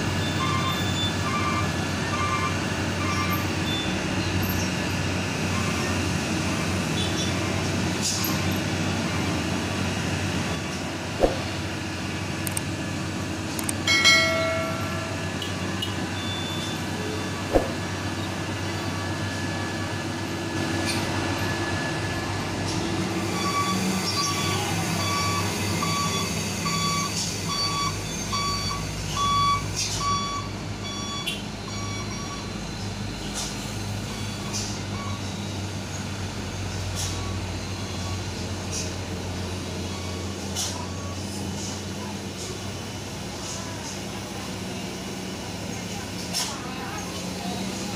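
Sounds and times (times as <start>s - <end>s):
reversing alarm beeping: 0.0s - 4.0s, 13.9s - 17.8s, 23.2s - 32.9s, 33.8s - 35.5s
truck diesel engine running: 0.0s - 47.9s.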